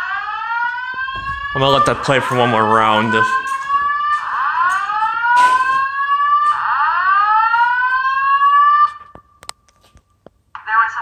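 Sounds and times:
fire alarm slow-whoop tone: 0.0 - 9.4.

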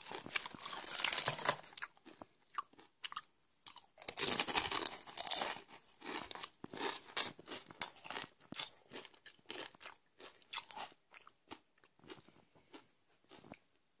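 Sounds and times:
crunching tortilla chips: 0.0 - 13.6.

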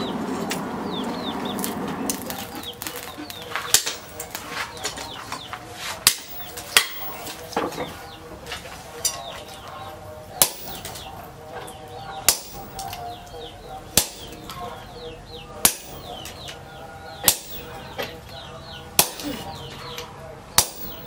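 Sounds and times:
birds chirping: 0.0 - 21.0
sledgehammer striking metal: 3.7 - 4.4, 6.0 - 7.2, 10.4 - 11.1, 12.2 - 12.9, 14.0 - 14.4, 15.6 - 16.4, 17.2 - 17.8, 20.6 - 21.0.

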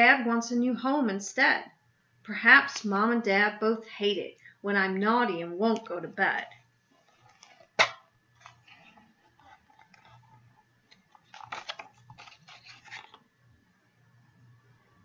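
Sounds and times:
paper pages rustling: 6.4 - 13.3.

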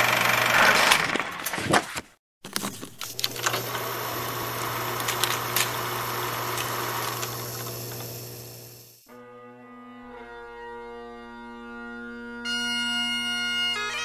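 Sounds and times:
film projector whirring: 0.0 - 1.4, 2.5 - 9.1
bagpipe music with drone: 9.1 - 14.0.

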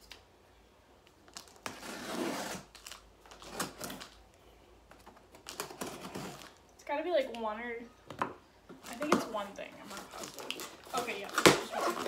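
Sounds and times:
packaging tearing and scraping: 1.3 - 4.2, 5.3 - 6.6, 9.8 - 12.0.

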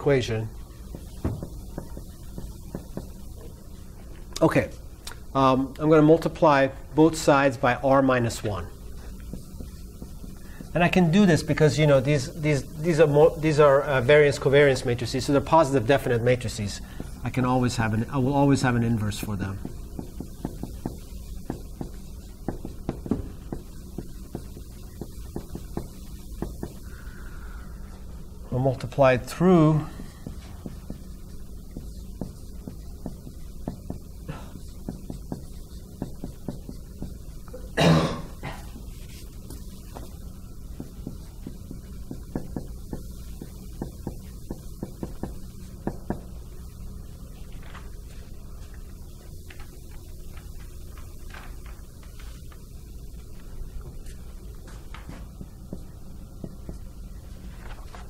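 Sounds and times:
steady low hum: 0.0 - 58.0
marker tapping on whiteboard: 0.8 - 3.2, 9.2 - 10.8, 19.6 - 26.8, 30.2 - 34.1, 34.7 - 37.2, 40.7 - 46.3, 54.9 - 56.9.

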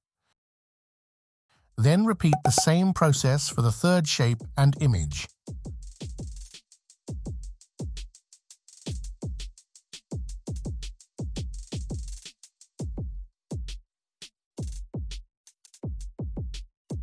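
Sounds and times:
electronic music with drum-machine beat: 2.3 - 3.1.

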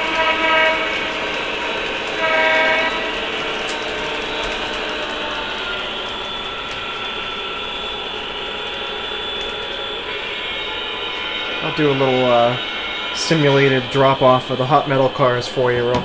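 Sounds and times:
model train horn blast: 0.0 - 7.7
model train wheels clattering: 0.0 - 10.1.

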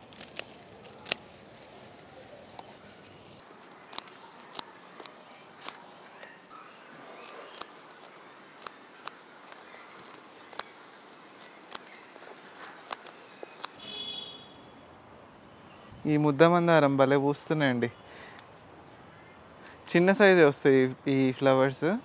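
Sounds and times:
scissors snipping stems: 0.0 - 13.8
leaves rustling: 0.0 - 13.9.

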